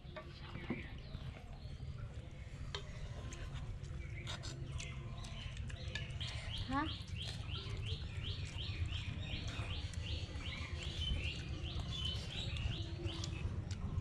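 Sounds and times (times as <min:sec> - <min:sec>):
bird chirping: 0:03.9 - 0:14.0.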